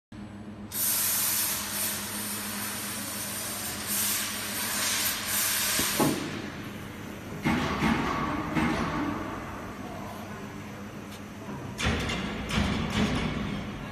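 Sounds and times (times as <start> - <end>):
low machine hum: 0.1 - 13.9
loud air hiss: 0.7 - 6.6.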